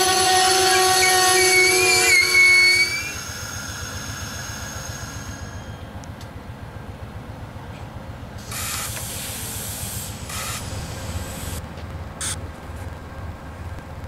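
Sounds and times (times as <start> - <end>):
air brakes hissing: 1.5 - 5.9, 8.4 - 11.6
low steady rumble: 10.2 - 14.0.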